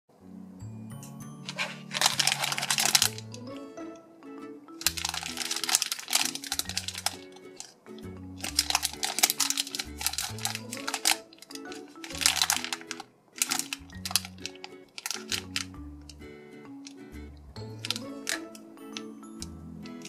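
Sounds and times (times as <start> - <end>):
background music: 0.1 - 20.0
plastic packaging crinkling: 1.4 - 3.4, 4.8 - 7.8, 8.4 - 15.8, 17.7 - 19.1.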